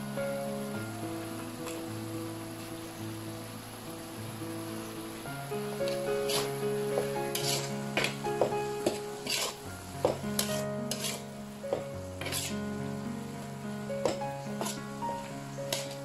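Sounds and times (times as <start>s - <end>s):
background music with held notes: 0.0s - 16.0s
food sizzling in a wok: 0.0s - 16.0s
metal spatula scraping a wok: 6.2s - 6.6s, 7.3s - 8.2s, 8.8s - 11.3s, 12.2s - 12.7s, 14.1s - 14.9s, 15.7s - 16.0s.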